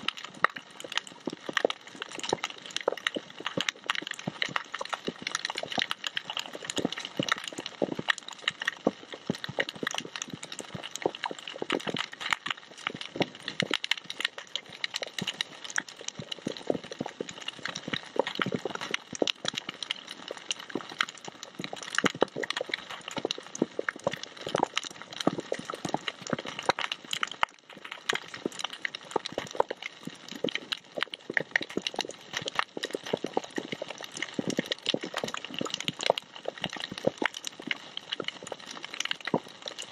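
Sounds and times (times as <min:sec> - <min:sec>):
snapping shrimp crackle underwater: 0:00.0 - 0:39.9.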